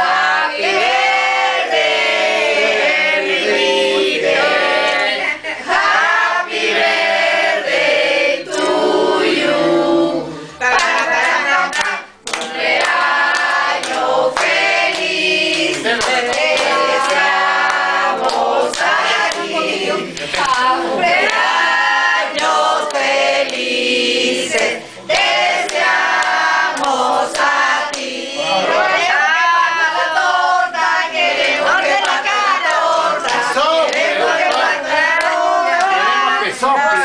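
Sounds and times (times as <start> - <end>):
group singing a birthday song: 0.0 - 37.0
hand clapping: 10.8 - 20.7, 24.5 - 28.2, 32.0 - 36.0.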